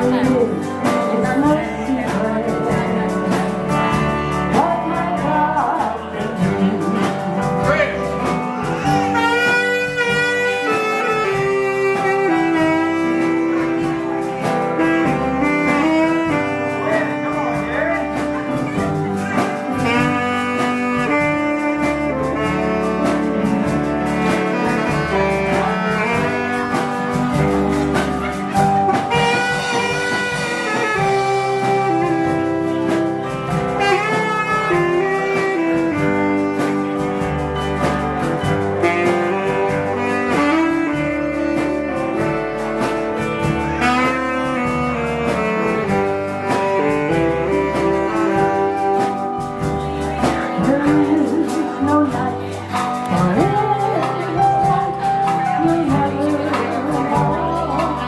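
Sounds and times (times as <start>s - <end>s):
live country band music: 0.0s - 58.0s.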